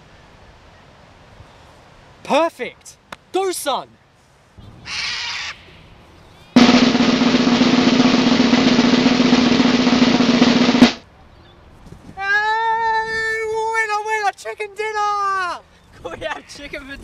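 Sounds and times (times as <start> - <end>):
short rushing noise: 6.6 - 11.0
snare drum roll: 6.6 - 11.0.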